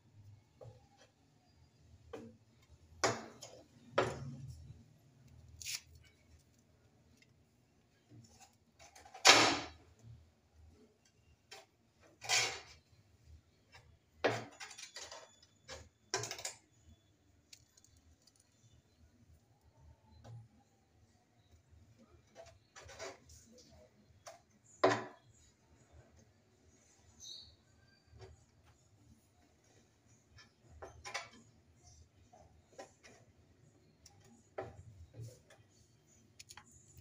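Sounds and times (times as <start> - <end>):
spatula scraping on tile: 11.2 - 13.0, 22.0 - 24.4.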